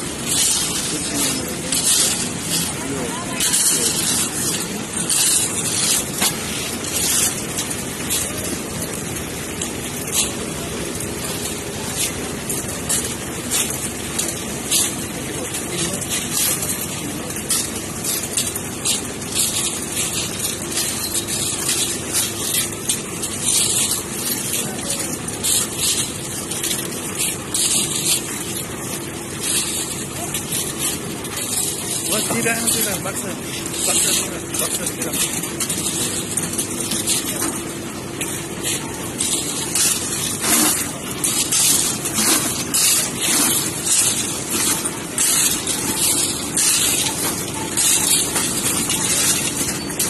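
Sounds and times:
shovelled gravel scraping: 0.0 - 9.0, 29.3 - 50.0
concrete mixer running: 0.0 - 50.0.

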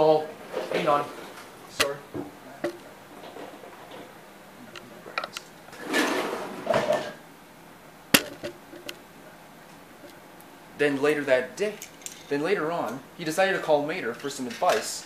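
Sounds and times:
camera handling clicks and knocks: 8.2 - 9.0.

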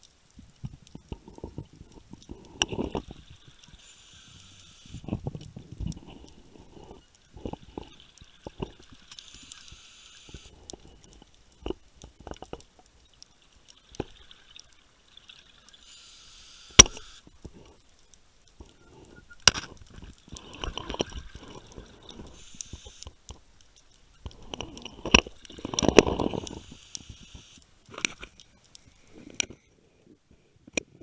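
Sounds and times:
exhaled air bubbling: 0.4 - 15.9, 18.5 - 30.2
sharp clicks: 15.6 - 29.6
regulator hissing inhalations: 15.8 - 17.2, 20.4 - 23.1, 25.6 - 27.6.

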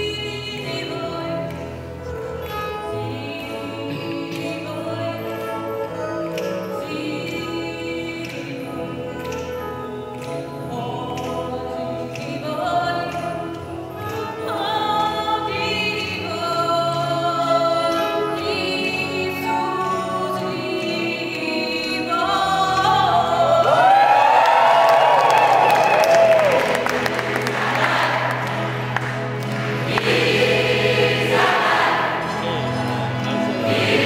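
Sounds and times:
choir singing in harmony: 14.4 - 34.0.

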